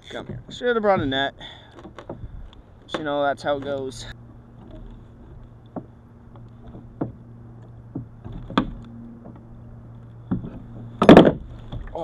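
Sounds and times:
steady low hum: 0:00.0 - 0:12.0
knocks against plastic kayak hull: 0:10.3 - 0:11.9.

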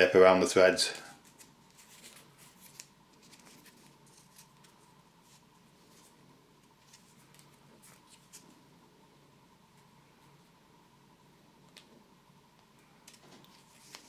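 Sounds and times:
tape rustling and clicking: 0:01.1 - 0:08.6, 0:11.6 - 0:14.0.

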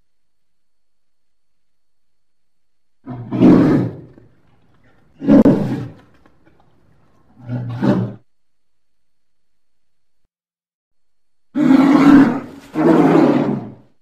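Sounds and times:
large animal roaring: 0:03.0 - 0:04.3, 0:05.2 - 0:06.0, 0:07.4 - 0:08.2, 0:11.6 - 0:13.9.

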